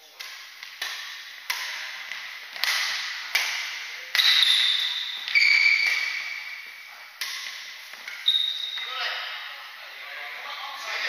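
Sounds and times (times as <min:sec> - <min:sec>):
rackets hitting shuttlecock: 0:00.0 - 0:09.4
shoe squeaks on wooden floor: 0:04.2 - 0:06.6, 0:08.1 - 0:08.9.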